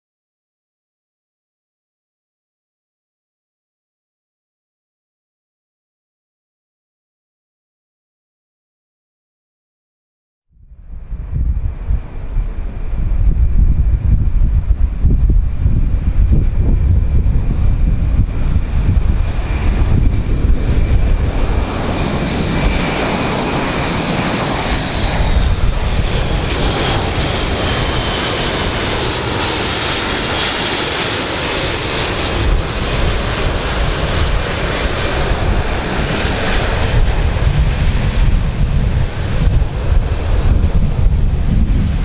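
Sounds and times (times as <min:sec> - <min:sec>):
turboprop aircraft drone: 0:10.5 - 0:42.0.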